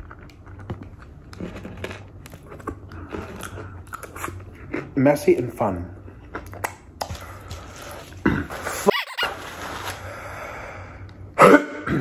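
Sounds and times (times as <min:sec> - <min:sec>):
man coughing: 0:11.4 - 0:12.0.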